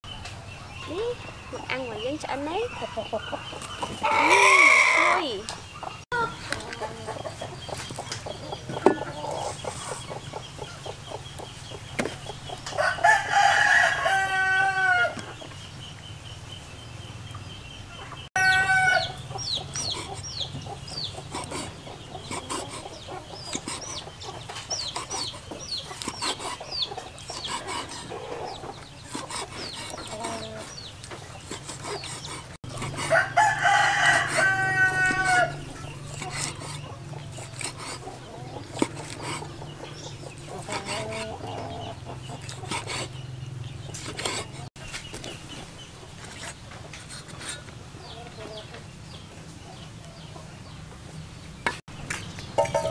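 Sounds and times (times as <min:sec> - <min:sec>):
rooster crowing: 0:04.0 - 0:05.2, 0:12.8 - 0:15.2, 0:18.4 - 0:19.3, 0:33.0 - 0:35.8.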